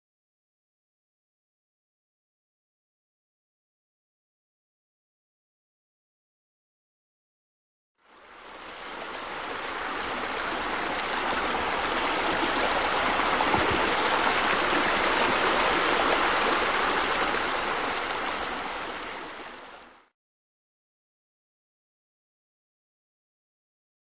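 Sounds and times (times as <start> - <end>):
water jets splashing: 8.5 - 19.8.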